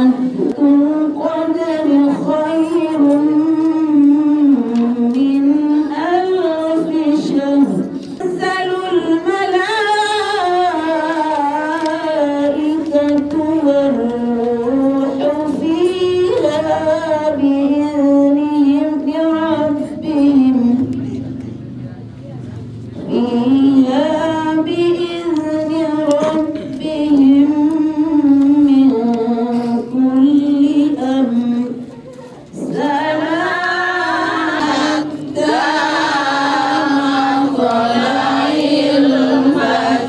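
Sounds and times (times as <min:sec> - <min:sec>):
woman chanting through microphone: 0:00.0 - 0:40.0.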